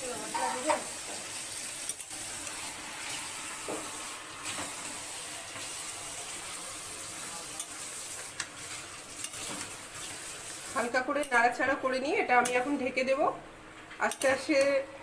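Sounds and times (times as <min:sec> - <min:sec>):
meat sizzling in oil: 0:00.0 - 0:11.7.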